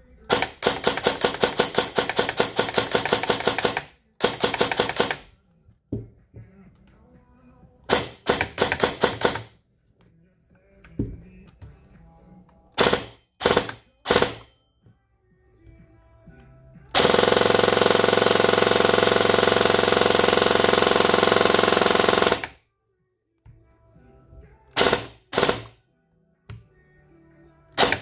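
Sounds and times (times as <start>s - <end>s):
airsoft gun firing bursts: 0.3s - 5.2s, 7.9s - 9.6s, 12.8s - 14.5s, 17.0s - 22.6s, 24.8s - 25.8s, 27.8s - 28.0s.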